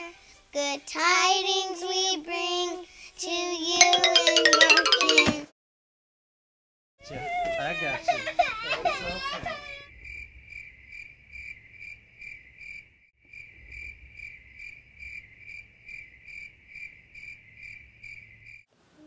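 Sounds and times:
crickets chirping: 0:10.0 - 0:18.6.

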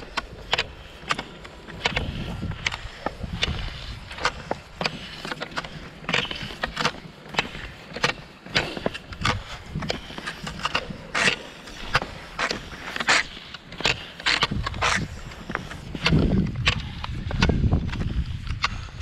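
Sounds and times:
ski poles clicking and scratching: 0:00.0 - 0:19.0
skis scraping on thin snow: 0:00.0 - 0:19.0.

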